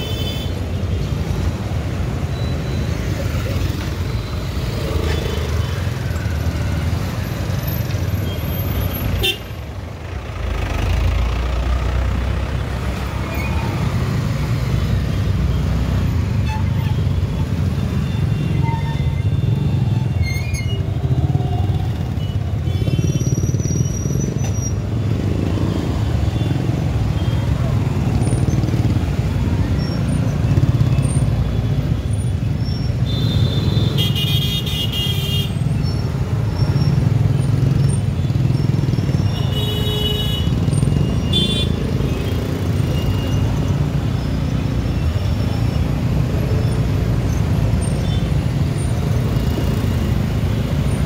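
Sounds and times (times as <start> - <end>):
vehicle horns honking: 9.2 - 9.6, 39.3 - 40.6, 41.3 - 41.8.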